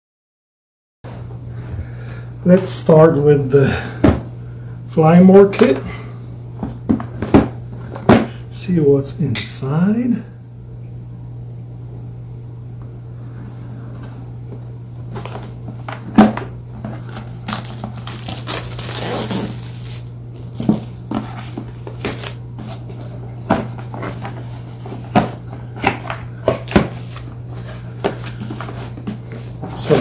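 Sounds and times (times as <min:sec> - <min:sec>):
steady low hum: 0:01.1 - 0:30.0
cardboard box rustling: 0:15.1 - 0:30.0.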